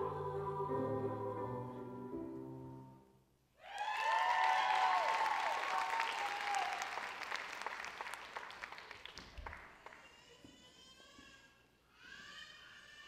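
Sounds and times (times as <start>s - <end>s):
audience cheering: 3.6s - 7.8s
audience applauding: 3.6s - 10.3s.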